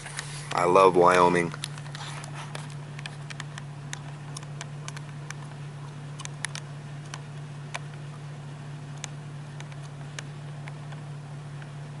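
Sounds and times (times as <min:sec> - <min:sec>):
vehicle cabin hum: 0:00.0 - 0:12.0
small clicks and ticks: 0:01.5 - 0:08.0, 0:08.9 - 0:11.0.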